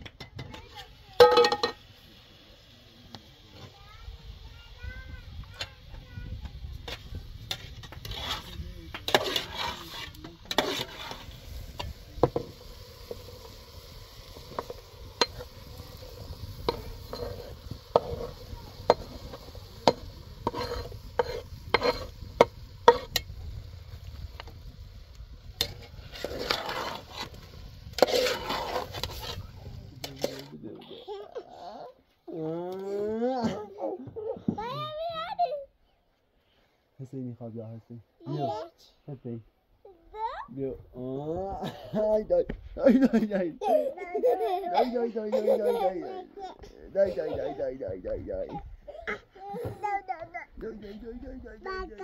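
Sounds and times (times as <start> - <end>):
meat sizzling in a pot: 0.0 - 30.6, 41.1 - 43.5
metal ladle scraping a pot: 6.8 - 23.4, 25.6 - 30.5.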